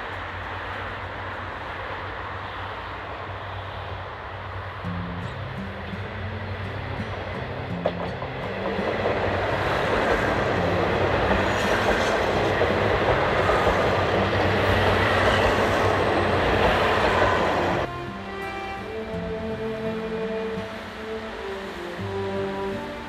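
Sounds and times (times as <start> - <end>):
diesel railcar engines: 0.0 - 23.0
train wheels rolling on rails: 0.0 - 23.0
background music: 12.7 - 23.0.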